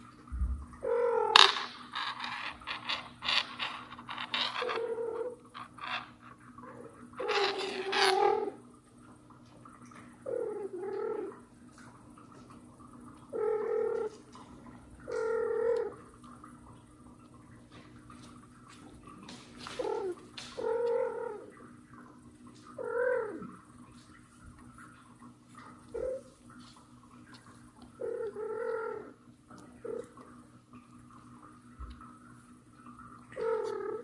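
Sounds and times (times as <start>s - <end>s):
scratching and scrabbling: 1.2s - 8.6s.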